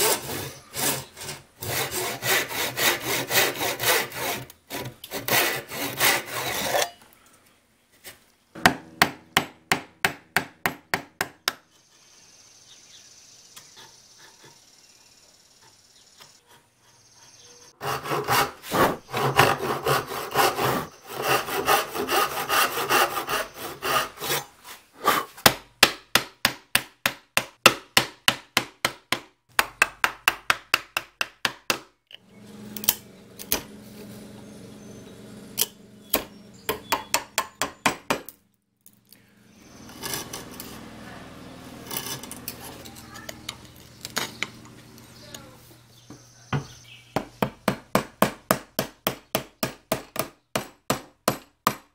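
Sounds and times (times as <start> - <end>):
chisel scraping wood: 0.0 - 7.0, 16.4 - 25.4, 39.6 - 44.5
hand saw cutting wood: 0.0 - 7.0, 16.4 - 25.5, 39.7 - 43.2
mallet striking chisel: 8.6 - 11.6.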